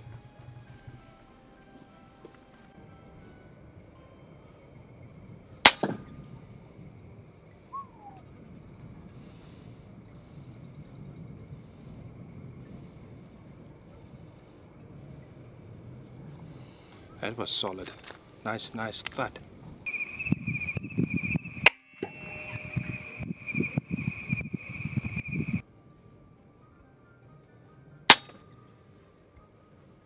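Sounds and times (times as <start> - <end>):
crickets chirping: 0.0 - 30.0
air rifle shot crack: 5.6 - 6.1, 28.1 - 28.4
slug thud on target: 5.7 - 6.1.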